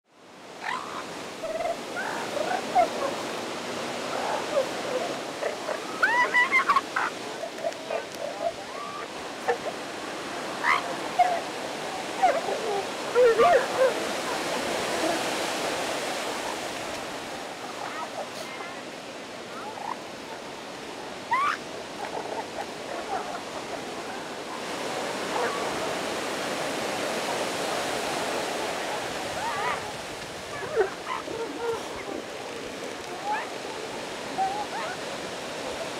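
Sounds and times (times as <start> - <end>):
surf washing: 0.1 - 35.9
elephant seals yelping: 0.6 - 15.6, 21.2 - 24.0, 29.1 - 35.3
seal pup yelping: 4.1 - 9.6, 10.5 - 14.0, 21.3 - 23.6.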